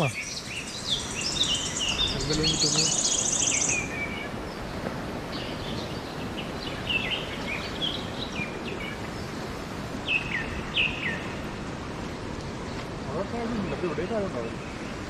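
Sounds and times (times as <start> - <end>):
bird chirping: 0.0 - 11.6
fast-flowing river rushing: 0.0 - 15.0.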